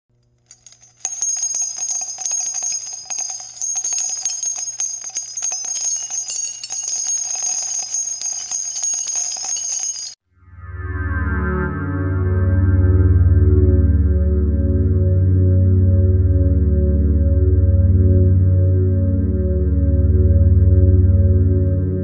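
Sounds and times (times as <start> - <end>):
bells jingling: 0.5 - 10.2.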